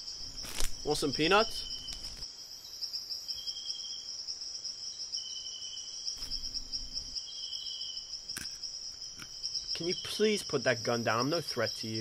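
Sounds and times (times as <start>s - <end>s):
insects trilling: 0.0s - 12.0s
lower insect trill: 0.0s - 12.0s.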